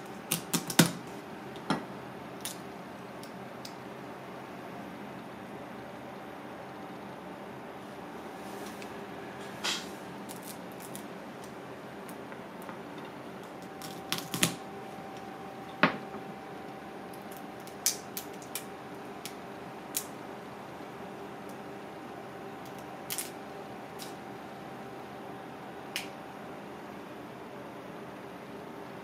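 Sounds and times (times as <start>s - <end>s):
kitchen hum: 0.0s - 28.3s
crab shells cracking: 0.1s - 1.0s, 2.4s - 3.8s, 10.2s - 14.6s, 17.1s - 20.2s, 22.6s - 23.4s.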